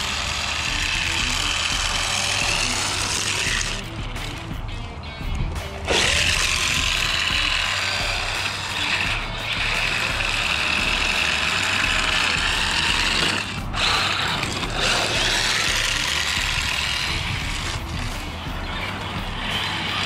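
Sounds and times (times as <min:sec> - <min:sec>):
rc car drivetrain noise: 0:00.0 - 0:04.6, 0:05.7 - 0:20.0
plastic tires scraping on asphalt: 0:10.8 - 0:20.0.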